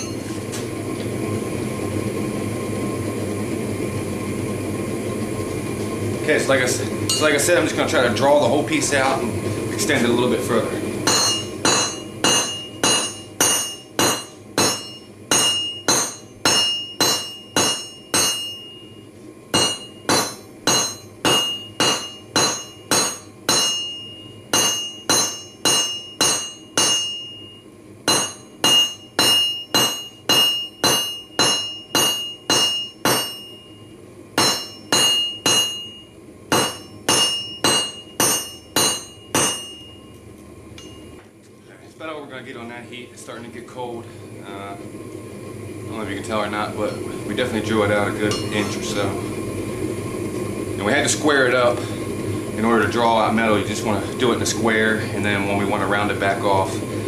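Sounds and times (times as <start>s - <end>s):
hammer striking metal on anvil: 0.0s - 0.3s, 7.1s - 7.4s, 11.0s - 18.8s, 19.5s - 33.8s, 34.4s - 40.0s, 40.8s - 41.2s, 48.3s - 48.8s
high ring from rail anvil: 0.0s - 0.3s, 7.1s - 7.4s, 11.1s - 19.0s, 19.6s - 40.1s, 40.8s - 41.2s, 48.3s - 48.8s.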